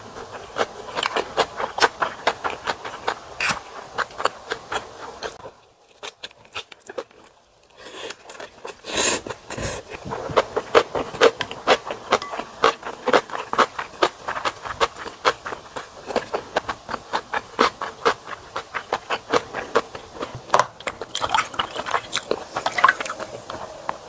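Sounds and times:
wet chewing and mouth smacks: 0.2s - 24.0s
loud slurp of broth: 8.8s - 9.9s.

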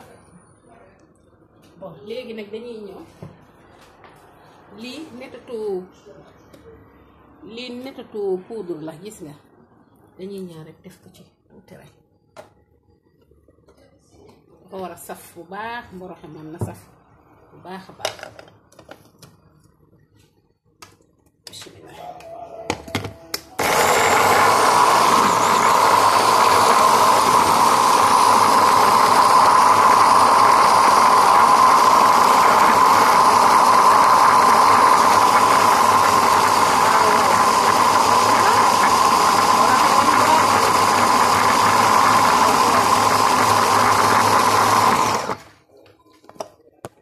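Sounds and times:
food processor running: 23.6s - 45.6s.

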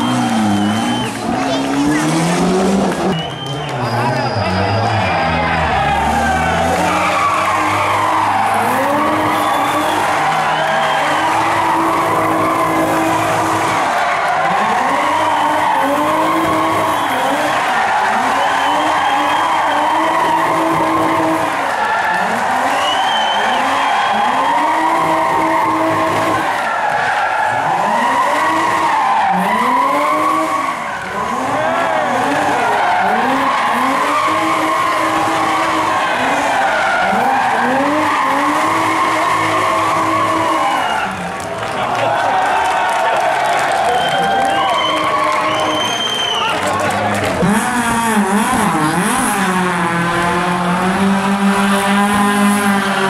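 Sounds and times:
tyre screech: 0.0s - 41.2s
car engine revving: 0.0s - 42.5s, 43.2s - 53.0s.

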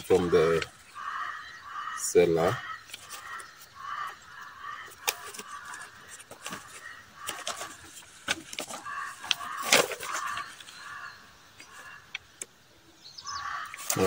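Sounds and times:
paper rustling and crinkling: 2.8s - 3.6s, 4.9s - 11.9s, 13.7s - 14.0s.

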